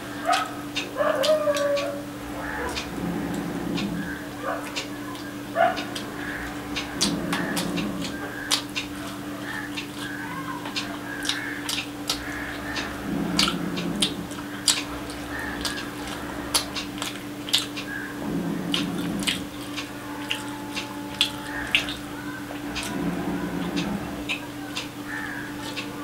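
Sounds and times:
low hum: 0.0 - 26.0
chewing: 0.2 - 25.9.

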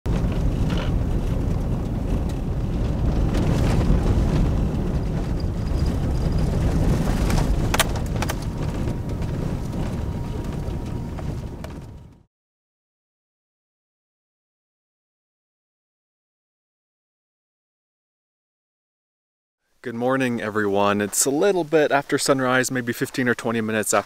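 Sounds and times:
vehicle rumbling on dirt road: 0.0 - 12.3.

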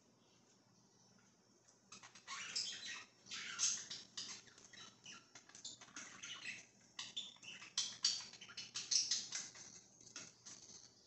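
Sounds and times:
budgerigars chattering: 2.0 - 9.6.

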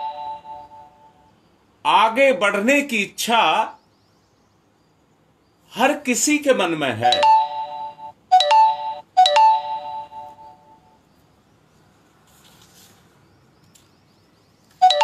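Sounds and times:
bell-like chime ringing: 0.0 - 1.1, 7.0 - 10.8
faint room noise: 0.0 - 15.0.

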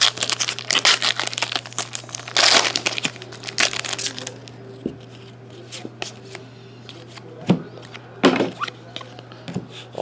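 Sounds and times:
foil wrapper crinkling and tearing: 0.0 - 4.5.

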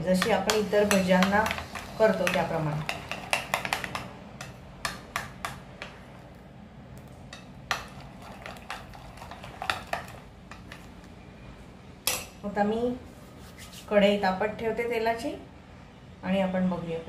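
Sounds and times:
spoon stirring batter in a bowl: 0.0 - 6.4, 7.0 - 11.0.

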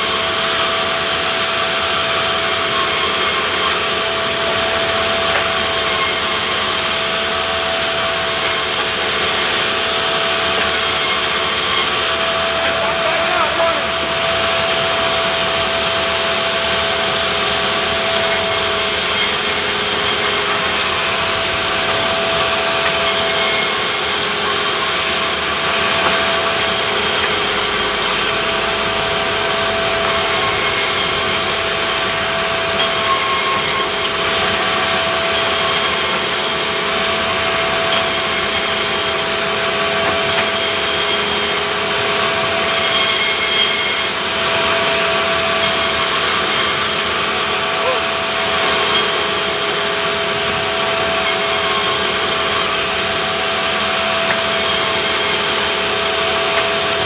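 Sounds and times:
band saw machine whine: 0.0 - 57.0.

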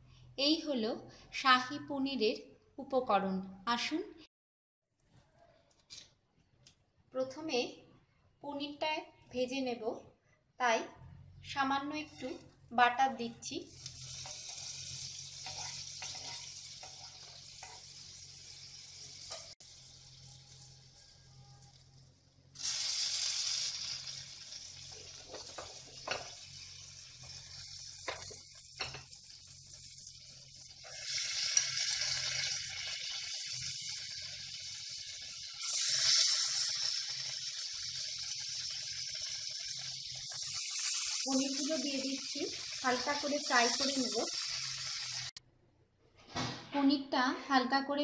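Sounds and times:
butter sizzling in a pan: 13.6 - 45.4.

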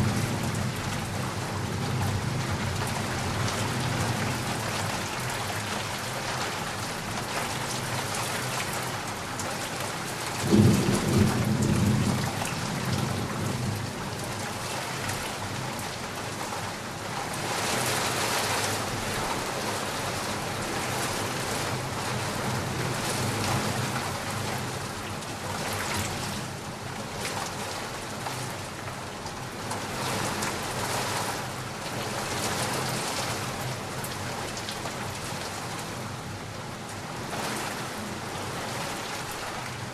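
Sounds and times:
heavy rain falling: 0.0 - 39.9
loud thunderclap rumbling: 10.4 - 14.0.

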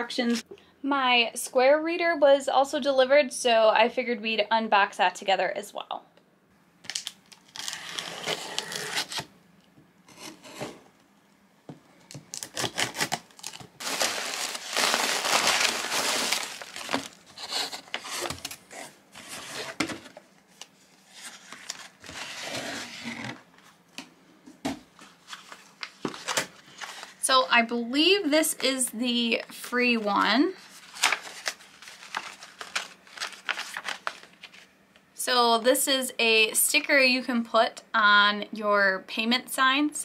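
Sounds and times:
plastic packing crinkling: 6.8 - 9.3, 12.1 - 22.5, 30.6 - 34.7
scissors slitting packing tape: 6.9 - 9.3, 12.3 - 13.6
cardboard flaps rustling: 12.3 - 20.2.

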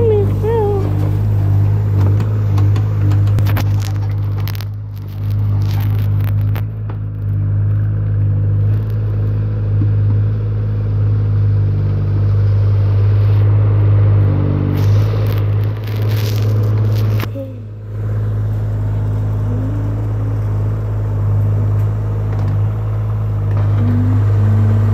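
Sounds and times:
excavator diesel engine running: 0.0 - 24.9
sharp clicks and scrapes: 1.9 - 7.8, 8.6 - 9.4, 14.6 - 17.4.

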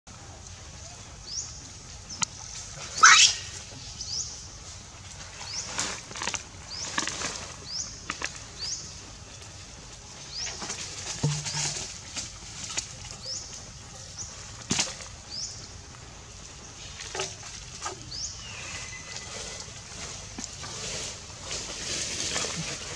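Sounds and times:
bird chirping: 3.0 - 4.4.

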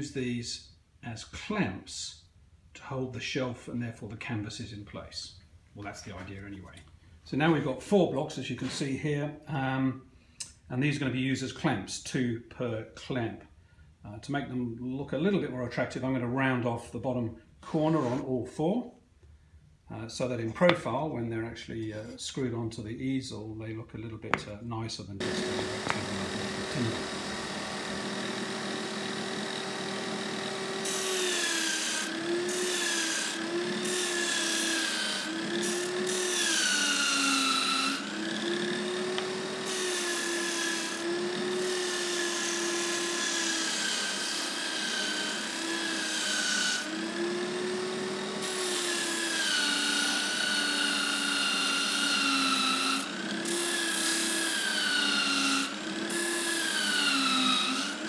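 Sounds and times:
disc sander motor humming: 25.2 - 58.0
wood rasping on sanding disc: 25.2 - 58.0.

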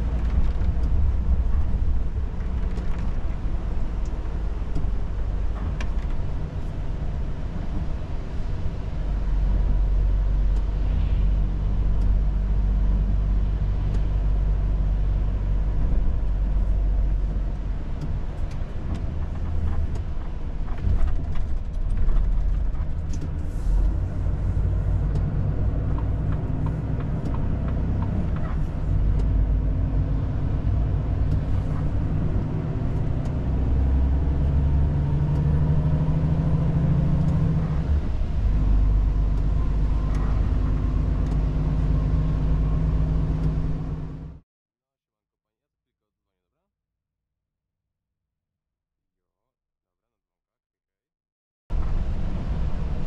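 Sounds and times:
light clicks and rattles: 18.0 - 29.4.

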